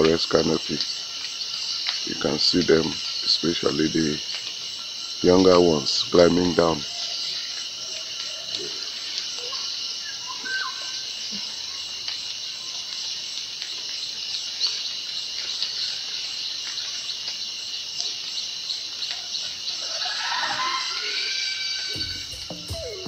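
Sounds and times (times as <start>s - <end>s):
insect chorus drone: 0.0s - 23.0s
music: 21.9s - 23.0s.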